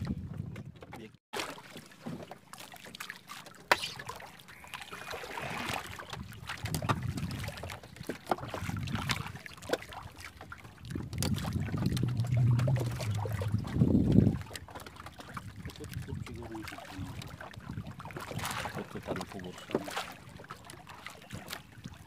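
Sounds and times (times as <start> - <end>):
water splashing around paddle: 0.0 - 22.0.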